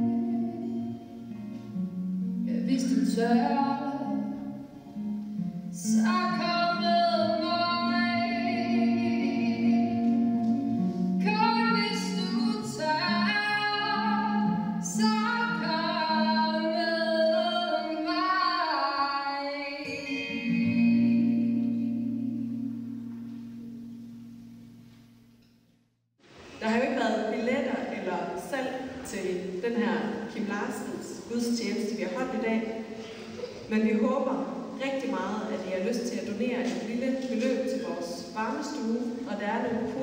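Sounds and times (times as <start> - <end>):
woman singing: 0.0 - 1.1, 2.4 - 4.6, 5.8 - 22.9
acoustic guitar chords: 0.0 - 25.8.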